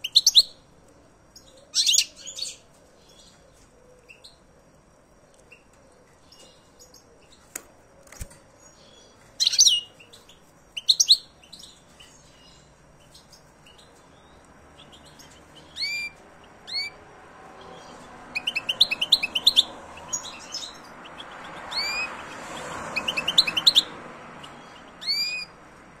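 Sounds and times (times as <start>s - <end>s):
finch twittering song: 0.0s - 0.6s, 5.4s - 17.0s, 17.6s - 25.6s.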